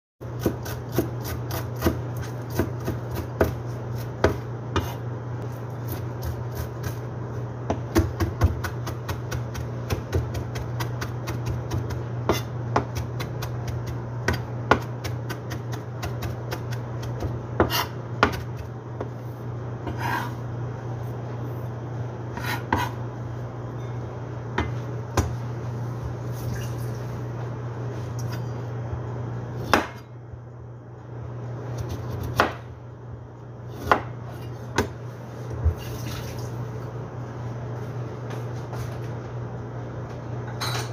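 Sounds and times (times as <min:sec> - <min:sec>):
steady low hum: 0:00.2 - 0:40.9
knife chopping on cutting board: 0:00.3 - 0:05.0, 0:07.7 - 0:19.2, 0:22.4 - 0:23.0, 0:29.6 - 0:30.1, 0:31.8 - 0:32.7, 0:33.8 - 0:35.0.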